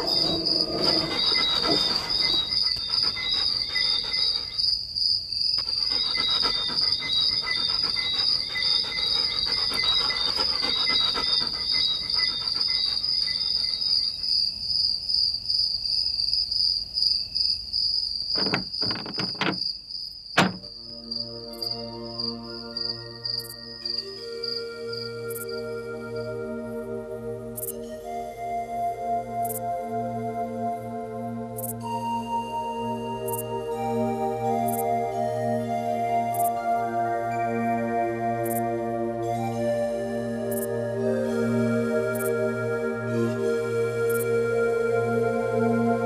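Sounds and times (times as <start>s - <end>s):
night insects chirping: 0.0s - 27.8s, 36.1s - 38.8s
sharp knocks: 18.4s - 19.7s, 20.4s - 20.7s.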